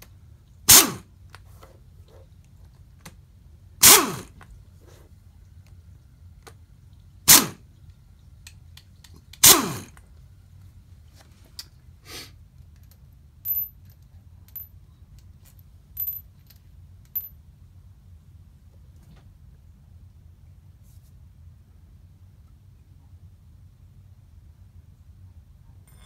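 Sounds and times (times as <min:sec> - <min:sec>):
impact driver spinning: 0:03.8 - 0:04.4, 0:09.4 - 0:10.0
steel bolts clinking on concrete: 0:12.6 - 0:17.4.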